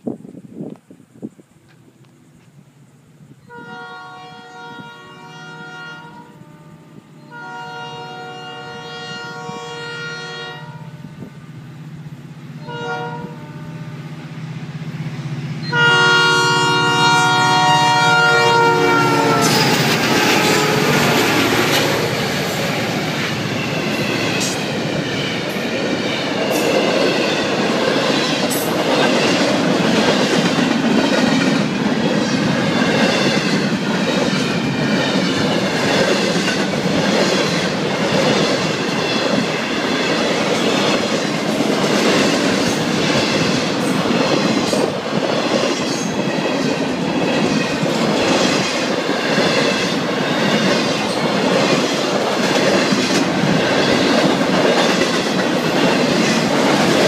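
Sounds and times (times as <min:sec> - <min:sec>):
locomotive horn blasts: 0:03.5 - 0:11.3, 0:12.6 - 0:14.0, 0:15.6 - 0:22.0
locomotive engines: 0:16.9 - 0:57.0.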